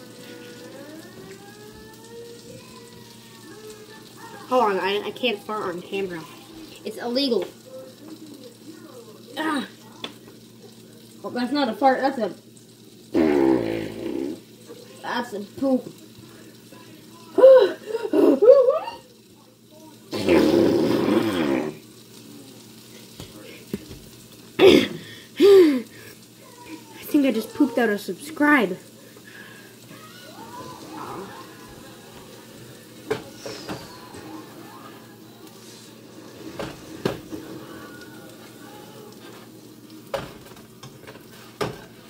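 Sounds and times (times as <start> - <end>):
pancake sizzling: 0.0 - 42.0
buzzy fart noise: 13.1 - 14.5, 20.1 - 21.9.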